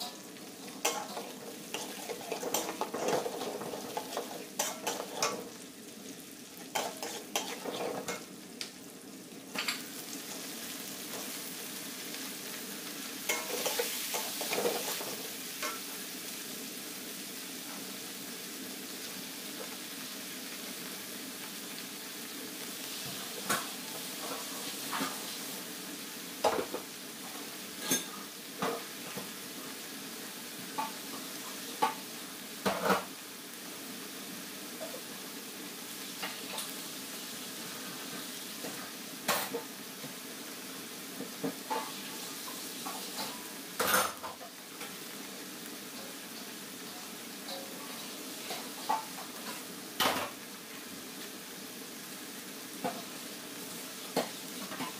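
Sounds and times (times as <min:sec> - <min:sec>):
food sizzling in hot oil: 0:00.0 - 0:54.9
metal spatula scraping wok: 0:00.8 - 0:05.5, 0:06.7 - 0:08.3, 0:13.3 - 0:15.9.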